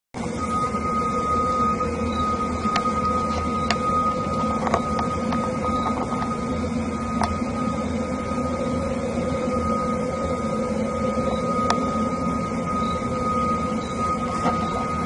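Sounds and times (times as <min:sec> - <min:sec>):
steady droning hum: 0:00.2 - 0:15.0
thin high tone: 0:00.2 - 0:15.0.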